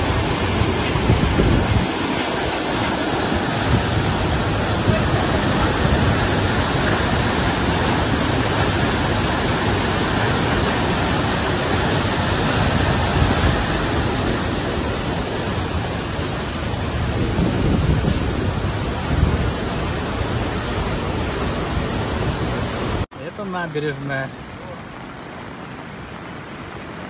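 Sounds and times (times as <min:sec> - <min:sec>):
floodwater rushing: 0:00.0 - 0:27.0.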